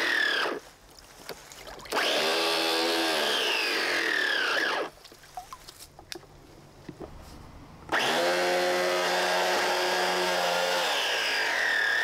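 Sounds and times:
electric pump motor whining: 1.9 - 4.9, 7.9 - 12.0.

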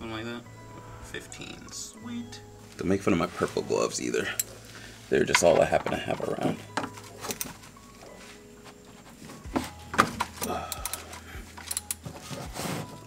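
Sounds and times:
wrench metal clicks and clinks: 10.4 - 12.0.

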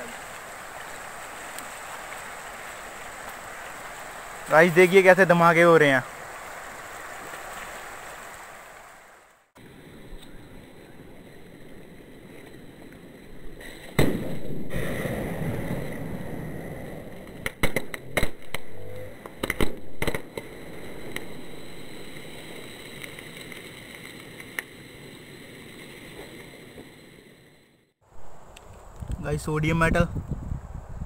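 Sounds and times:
sharp bangs: 13.8 - 22.6
faint pops: 17.1 - 21.4
sodium reacting violently on water: 18.0 - 24.4.

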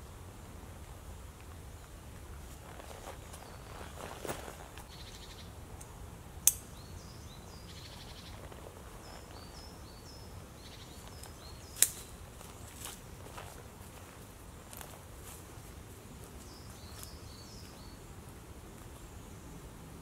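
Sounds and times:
small birds chirping: 1.6 - 15.0, 16.0 - 19.7
rucksack rustling: 2.4 - 4.9.

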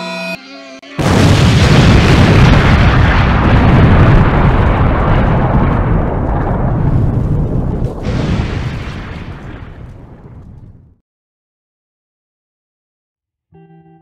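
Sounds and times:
explosion blast and roar: 1.0 - 11.0.

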